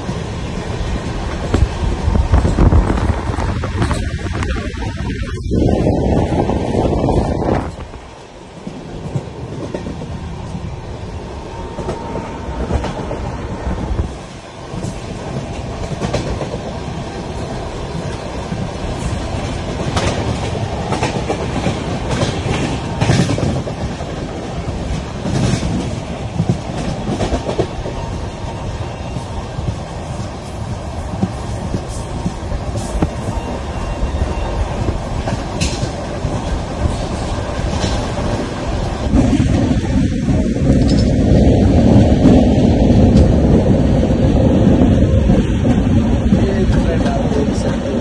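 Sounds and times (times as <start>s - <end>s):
rushing air: 0.0s - 46.7s
train wheels rumbling on track: 0.0s - 48.0s.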